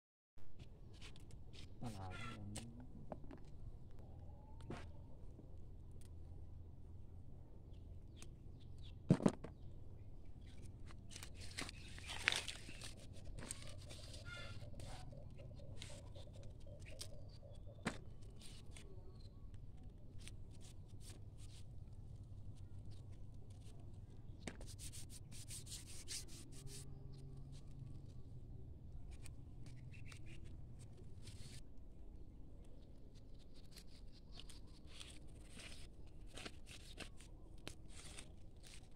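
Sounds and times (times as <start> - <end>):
plants rustling: 10.4 - 15.1, 33.1 - 38.9
stems snapping: 11.1 - 13.8.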